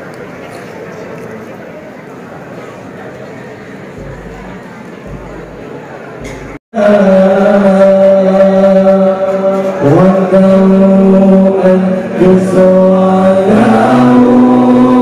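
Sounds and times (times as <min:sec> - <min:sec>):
man chanting over loudspeakers: 0:06.7 - 0:15.0.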